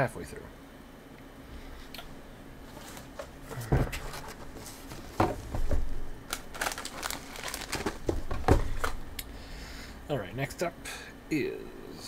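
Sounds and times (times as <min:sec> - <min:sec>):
snack wrappers crinkling: 0:06.2 - 0:09.1.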